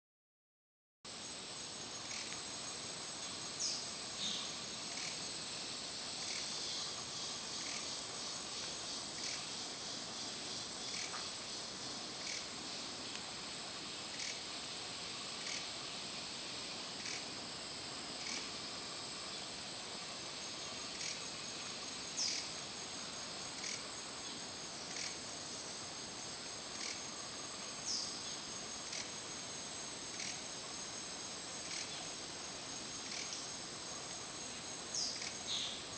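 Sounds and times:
high-pitched insect buzz: 1.1s - 35.9s
faint regular ticks: 2.0s - 2.5s, 4.9s - 5.2s, 6.2s - 6.6s, 7.6s - 8.0s, 8.6s - 9.5s, 10.8s - 11.3s, 12.2s - 12.5s, 14.1s - 14.4s, 15.4s - 15.7s, 17.0s - 17.3s, 18.2s - 18.6s, 20.9s - 21.3s, 22.2s - 22.5s, 23.5s - 23.9s, 24.9s - 25.2s, 26.7s - 27.1s, 28.8s - 29.2s, 30.1s - 30.5s, 31.6s - 32.0s, 33.0s - 33.5s, 35.1s - 35.4s.

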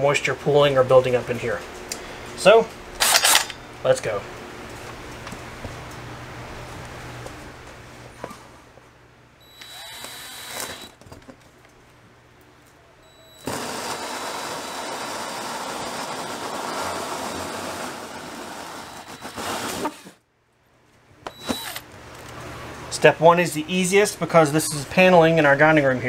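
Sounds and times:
drill hole saw cutting: 9.4s - 11.0s, 13.2s - 20.2s, 21.3s - 21.9s.

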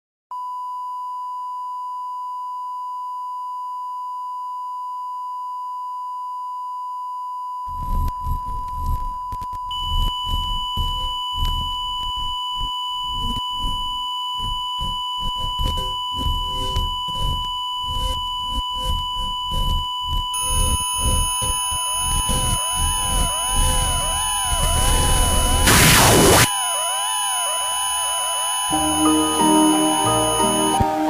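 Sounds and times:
steady electronic sine tone: 0.3s - 31.0s
higher steady tone: 19.7s - 31.0s.

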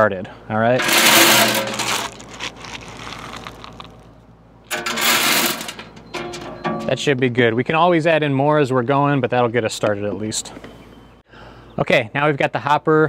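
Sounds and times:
wood pellets pouring into metal hopper: 0.8s - 2.8s, 4.7s - 5.9s.

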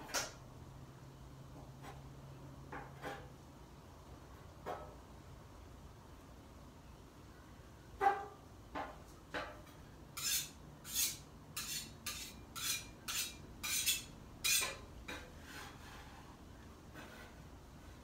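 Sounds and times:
metal spatula scraping griddle: 2.7s - 3.4s, 10.1s - 18.0s.

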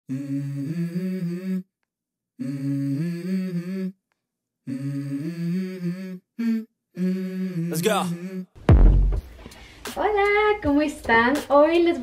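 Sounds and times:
hummed vocal phrase: 4.7s - 8.5s.

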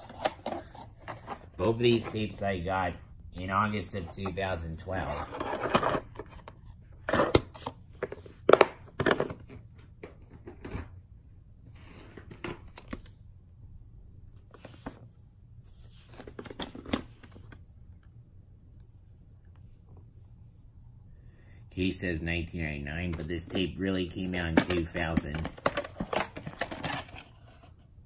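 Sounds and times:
plastic cases clicking and knocking: 24.5s - 27.2s.

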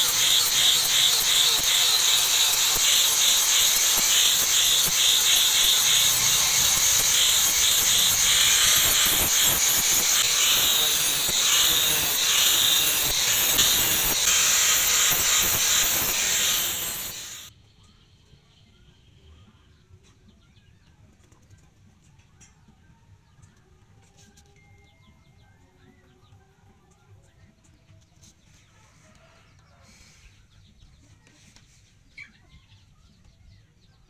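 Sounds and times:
workshop machine whirring: 0.0s - 17.5s.

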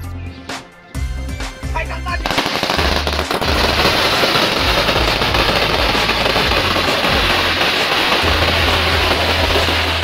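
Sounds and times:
firecrackers crackling: 2.1s - 10.0s.

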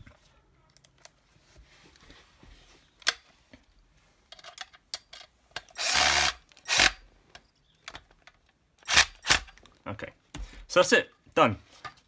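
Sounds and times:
cordless drill motor running: 5.8s - 7.0s.

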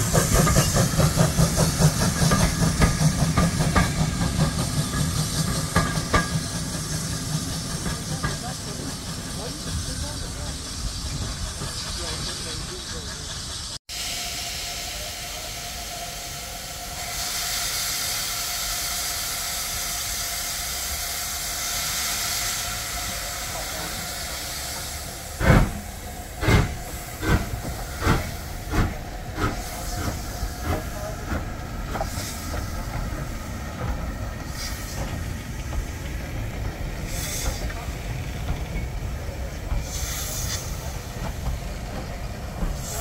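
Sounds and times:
steam hissing from drain cocks: 0.0s - 43.0s
steam locomotive exhaust chuffs: 0.0s - 43.0s.

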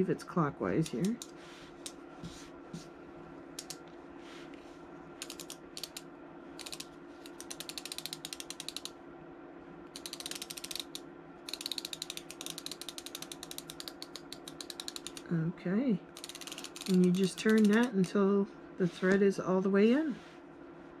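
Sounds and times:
needle case ratchet clicks: 5.2s - 6.0s, 6.6s - 8.9s, 10.0s - 15.3s, 16.1s - 18.0s.

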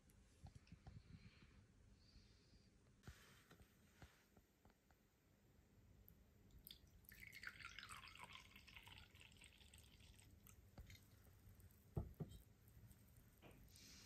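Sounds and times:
liquid pouring into glass: 6.6s - 11.2s
glass carafe knocking on wood: 12.0s - 12.4s.

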